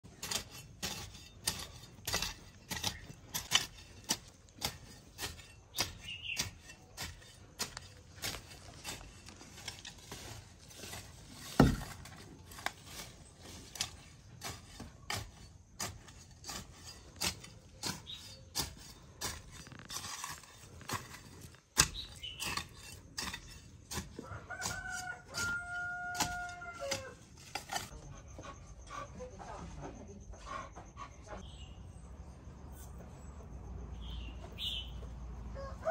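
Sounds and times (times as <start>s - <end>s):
hoe chopping soil: 0.0s - 28.0s
rooster crowing: 24.2s - 27.3s, 35.5s - 35.9s.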